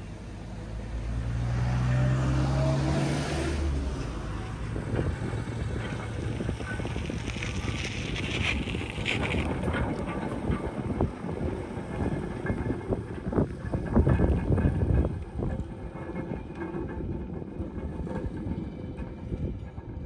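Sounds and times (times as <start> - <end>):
diesel locomotive engine revving: 0.0 - 8.2
wind noise: 2.2 - 20.0
train cars rattling over rails: 3.4 - 20.0.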